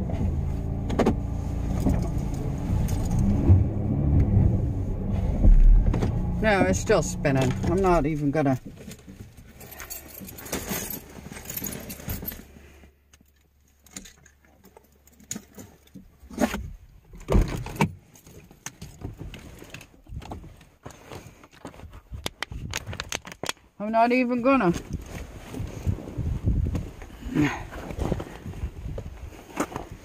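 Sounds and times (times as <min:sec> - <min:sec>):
van engine idling: 0:00.0 - 0:08.4
clicks knocks and rattles: 0:21.5 - 0:23.6.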